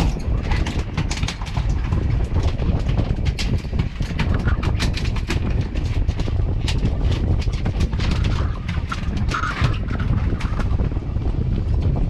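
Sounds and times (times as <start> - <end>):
boat rumbling: 0.0 - 12.0.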